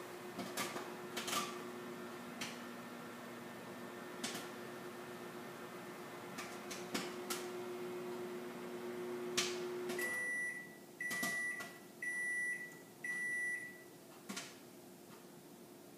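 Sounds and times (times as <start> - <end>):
microwave oven humming: 0.0 - 15.9
microwave beeps: 10.0 - 14.0.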